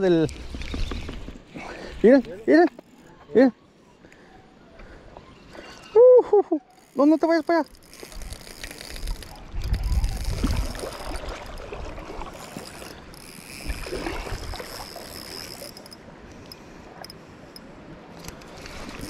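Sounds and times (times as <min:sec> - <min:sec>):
wind buffeting microphone: 0:08.1 - 0:14.9
rushing river water: 0:09.9 - 0:19.0.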